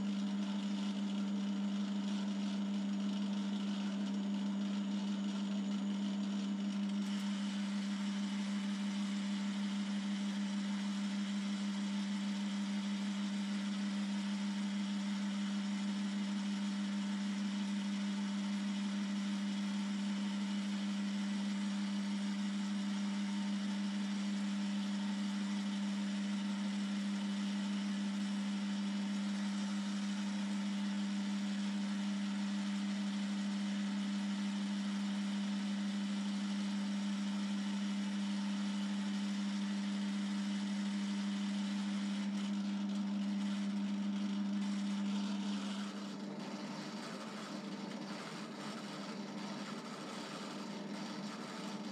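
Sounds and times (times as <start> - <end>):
lathe motor humming: 5.9 - 20.0, 37.3 - 51.9.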